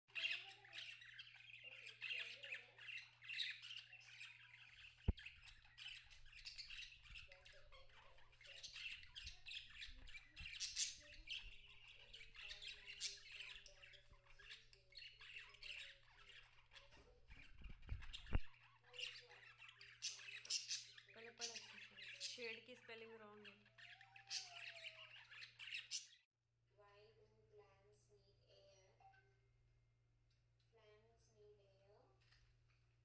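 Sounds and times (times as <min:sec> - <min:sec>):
cockatiel chirping: 0:00.1 - 0:22.6, 0:23.5 - 0:26.2.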